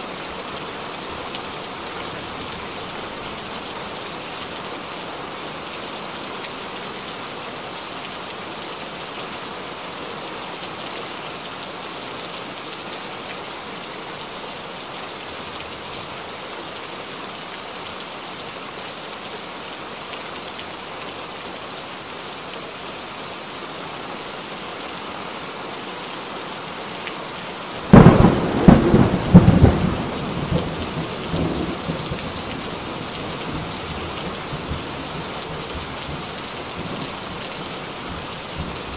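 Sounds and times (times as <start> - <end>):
heavy rain falling: 0.0 - 38.9
thunder clap rumbling: 27.9 - 32.2.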